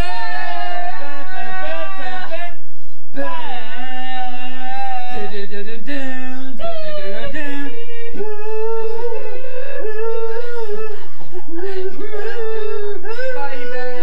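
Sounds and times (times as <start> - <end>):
men singing a cappella in harmony: 0.0 - 14.0.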